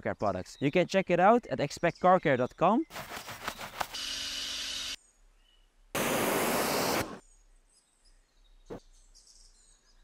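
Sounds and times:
loud rushing hiss: 6.0 - 7.2.

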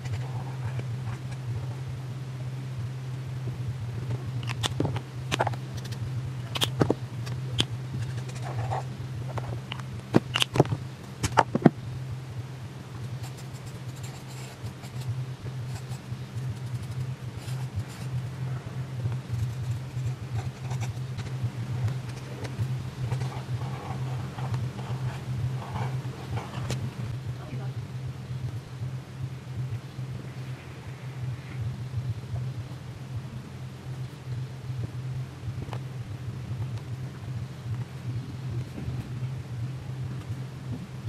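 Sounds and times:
steady low hum: 0.0 - 41.0
markers clicking and knocking: 4.4 - 11.8
marker scratching on paper: 8.0 - 10.4, 13.2 - 18.2, 19.3 - 26.9.

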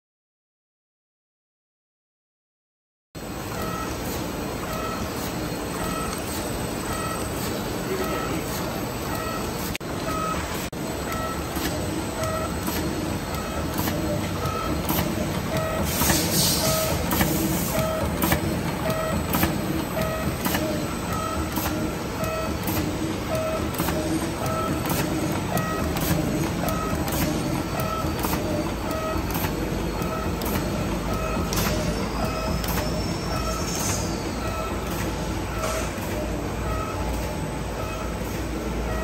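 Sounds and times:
machine humming: 3.2 - 39.0
sharp machine click: 11.1 - 36.3
two-pitch electronic beep: 29.9 - 34.9.

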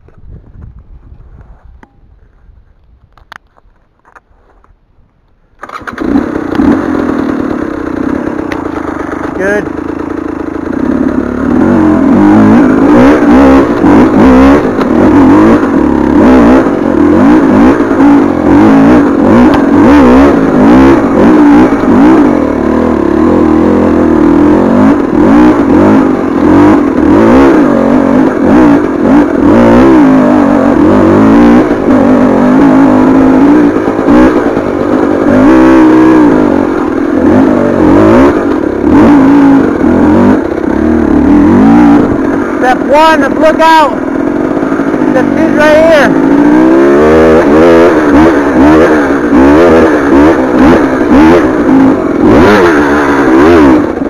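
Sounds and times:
dirt bike engine revving hard: 5.6 - 54.0.

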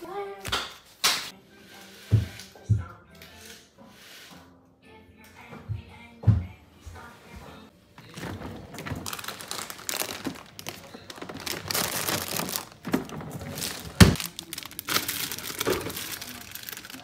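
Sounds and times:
plastic bags rustling: 8.0 - 17.0.

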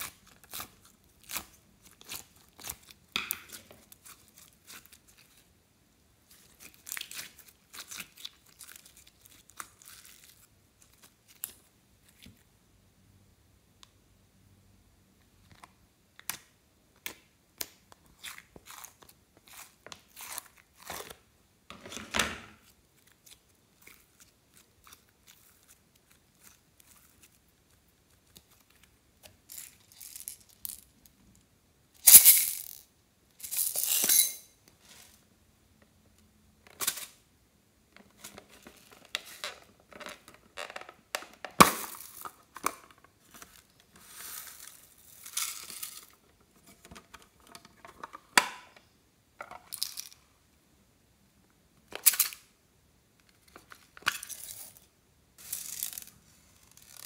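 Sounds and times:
slime squelching: 0.0 - 5.5, 6.3 - 12.2, 22.6 - 28.9.

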